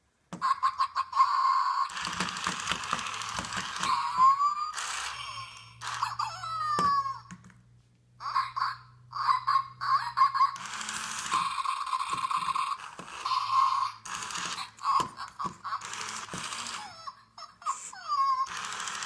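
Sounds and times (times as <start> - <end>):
toy motor whirring: 0.4 - 7.3, 9.2 - 19.0
electronic puppy yips and whines: 3.7 - 7.3.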